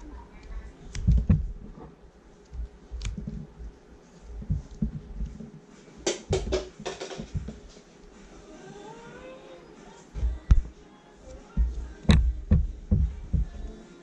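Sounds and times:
play dough thumping on table: 0:06.1 - 0:07.6.

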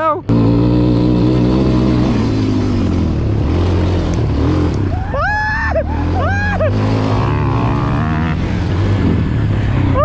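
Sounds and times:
quad engine running: 0:00.0 - 0:10.0
high-pitched whoops: 0:04.9 - 0:06.7.

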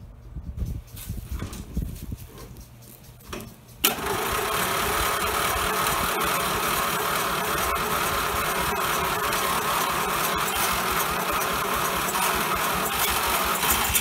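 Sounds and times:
lawn tractor engine running: 0:03.3 - 0:14.0.

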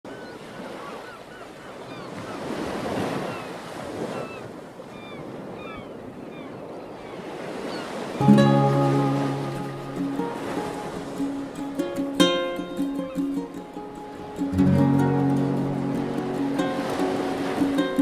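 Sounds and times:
ocean surf washing onto beach: 0:06.6 - 0:18.0
ukulele music: 0:08.2 - 0:18.0.

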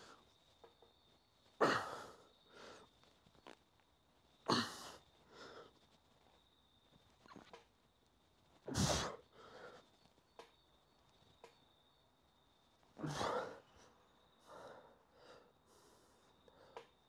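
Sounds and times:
man breathing quietly: 0:00.0 - 0:00.8, 0:01.4 - 0:03.6, 0:04.4 - 0:06.5, 0:08.6 - 0:10.2, 0:13.0 - 0:17.0.

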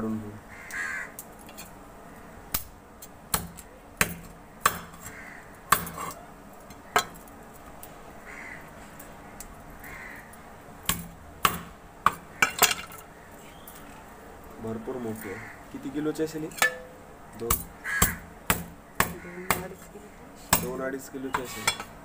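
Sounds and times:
crows cawing: 0:00.4 - 0:01.3, 0:04.7 - 0:07.2, 0:08.2 - 0:10.6, 0:12.1 - 0:14.0, 0:14.9 - 0:16.2, 0:17.2 - 0:20.7.

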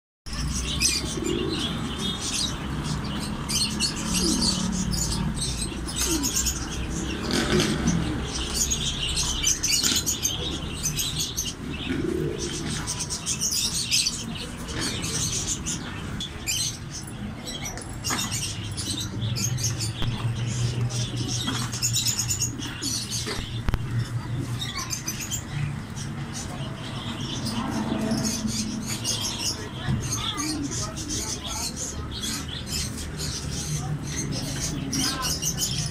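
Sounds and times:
small birds chirping: 0:00.2 - 0:35.9
pigeons cooing: 0:00.3 - 0:35.9.

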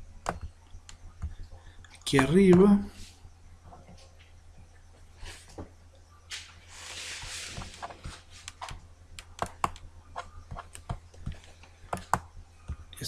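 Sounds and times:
soft hiss: 0:00.0 - 0:13.0
steady low hum: 0:00.0 - 0:13.0
computer mouse and keyboard clicks: 0:07.6 - 0:12.8.

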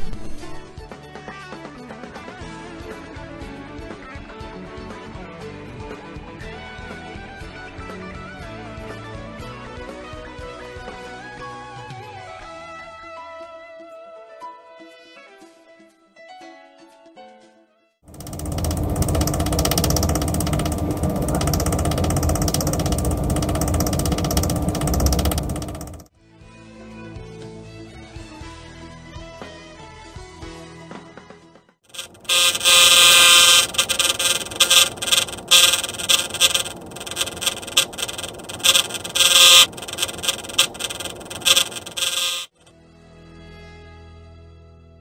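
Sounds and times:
refrigerator fan rattling: 0:18.1 - 0:26.1, 0:31.9 - 0:42.5
refrigerator hum: 0:18.1 - 0:26.1, 0:31.9 - 0:42.5.

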